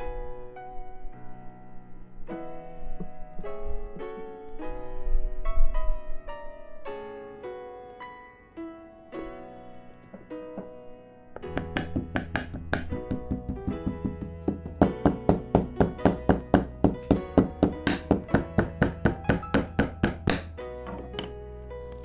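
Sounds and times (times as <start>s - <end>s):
piano music: 0.0s - 22.0s
rolling pin thudding on meat: 11.4s - 22.0s.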